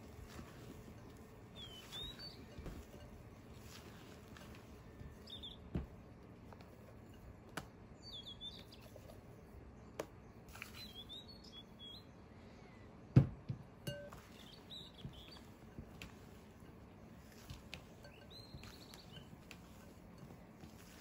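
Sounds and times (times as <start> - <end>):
high squeaky chirps: 1.5 - 3.2, 5.2 - 5.7, 17.9 - 20.0
taps and knocks on glass bowls: 13.8 - 21.0.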